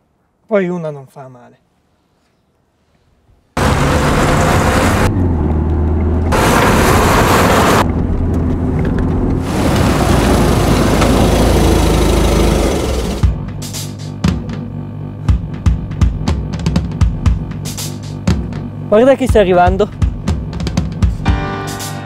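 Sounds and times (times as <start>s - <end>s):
car engine and tyre noise: 3.6s - 13.4s.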